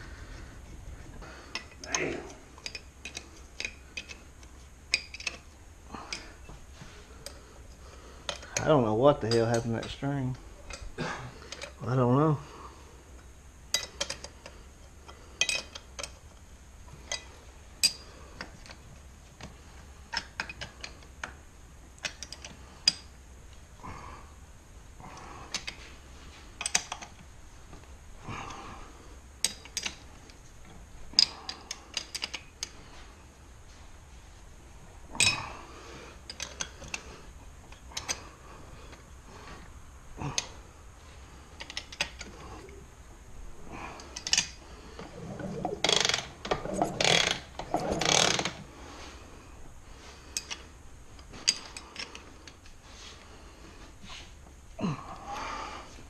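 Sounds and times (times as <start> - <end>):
metal parts rattling: 1.5 - 4.2, 4.9 - 5.5, 15.3 - 16.3, 35.2 - 35.5, 44.0 - 48.6
hand tools clinking on bench: 15.4 - 16.1.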